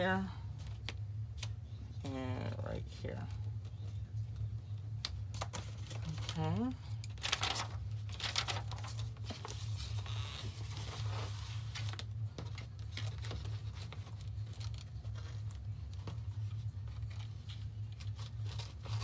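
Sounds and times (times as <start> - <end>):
steady low hum: 0.0 - 19.0
plastic sheet crinkling: 5.2 - 19.0.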